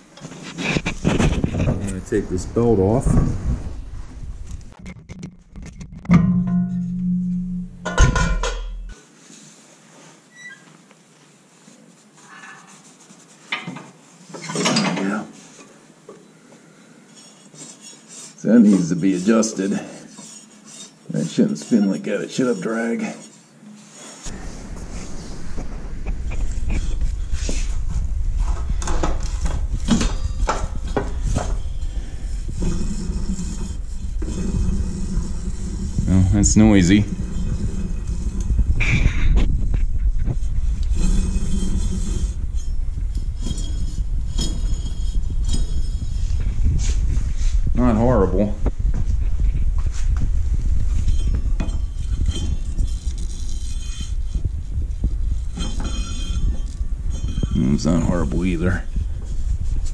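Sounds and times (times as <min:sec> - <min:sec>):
clicks and scrapes: 0:00.2 - 0:02.0, 0:04.4 - 0:07.0, 0:49.1 - 0:59.9
pulley bearing rumbling: 0:24.3 - 0:59.9.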